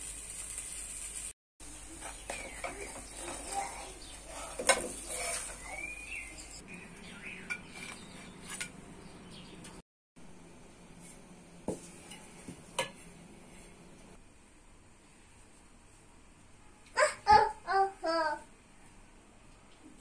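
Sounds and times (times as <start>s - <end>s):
light sizzle: 0.0s - 6.6s.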